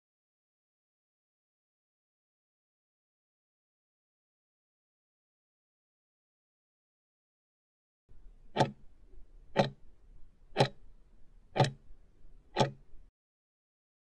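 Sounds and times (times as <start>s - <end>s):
faint low noise: 8.1s - 13.1s
clock ticks: 8.5s - 8.9s, 9.5s - 9.8s, 10.5s - 10.8s, 11.5s - 11.9s, 12.5s - 13.0s.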